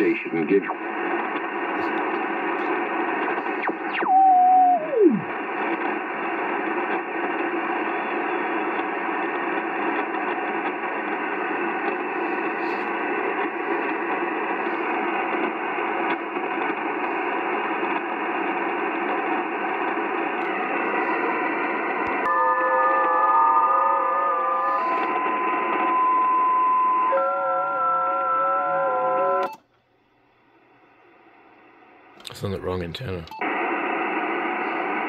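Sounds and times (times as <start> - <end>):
radio band noise and hiss: 0.0 - 29.6, 31.2 - 35.0
radio whistle sweeping down: 3.1 - 5.9, 21.9 - 29.5.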